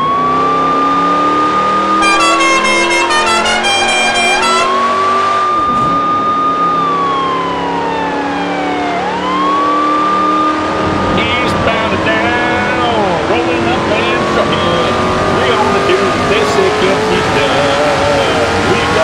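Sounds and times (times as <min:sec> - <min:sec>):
siren-like wailing tone: 0:00.0 - 0:10.6
quick high notes: 0:02.0 - 0:04.8.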